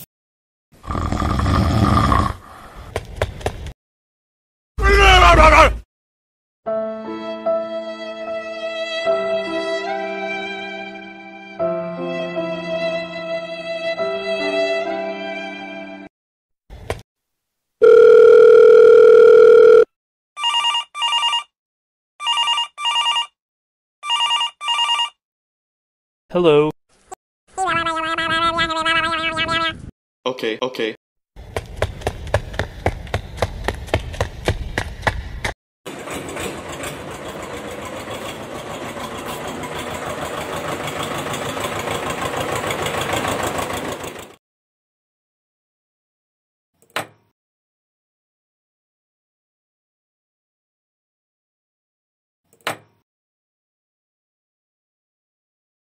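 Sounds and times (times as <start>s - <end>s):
phone ringing in double rings: 17.8s - 21.5s, 22.2s - 23.4s, 24.0s - 25.2s
telephone dial tone: 17.8s - 21.5s, 22.2s - 23.4s, 24.0s - 25.2s
toy tractor motor running: 35.9s - 44.4s.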